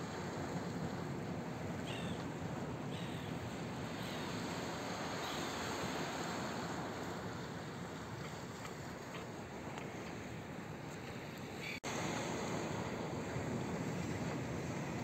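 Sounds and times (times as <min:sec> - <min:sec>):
surf on rocky shore: 0:00.0 - 0:15.0
wind: 0:00.0 - 0:15.0
gulls calling: 0:01.8 - 0:02.2.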